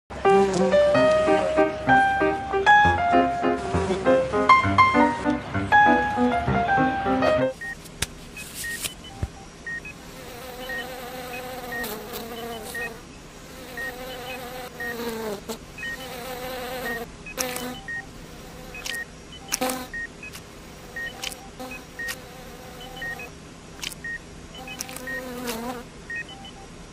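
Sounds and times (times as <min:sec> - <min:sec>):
heart monitor beeps: 0:07.6 - 0:07.8, 0:08.4 - 0:10.0, 0:10.6 - 0:13.0, 0:13.8 - 0:15.0, 0:15.8 - 0:16.0, 0:16.9 - 0:18.1, 0:18.7 - 0:20.4, 0:21.0 - 0:22.2, 0:22.8 - 0:23.3, 0:24.0 - 0:25.3, 0:26.1 - 0:26.7
wavering buzzing hum: 0:07.6 - 0:26.8.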